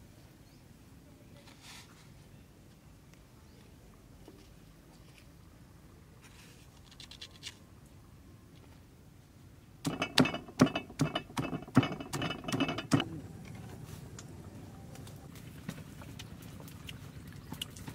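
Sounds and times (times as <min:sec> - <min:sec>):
stone pestle pounding in mortar: 0:09.9 - 0:13.1.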